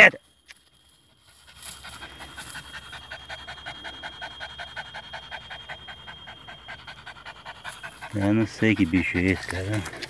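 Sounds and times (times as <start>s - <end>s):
dog panting rapidly: 1.4s - 10.0s.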